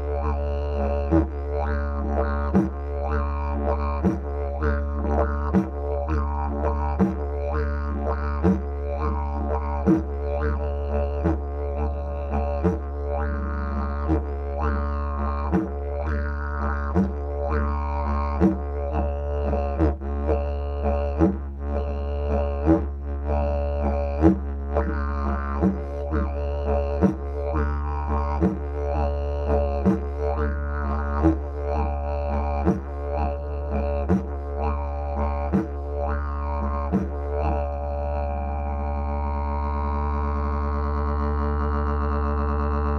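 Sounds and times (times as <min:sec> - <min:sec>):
didgeridoo drone: 0:00.0 - 0:42.9.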